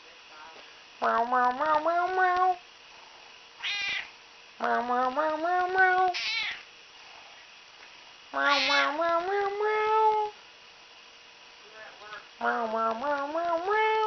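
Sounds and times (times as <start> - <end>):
cat long rising meows: 3.6 - 4.1, 5.7 - 6.6, 8.4 - 10.3
cat short high meows: 3.6 - 4.1.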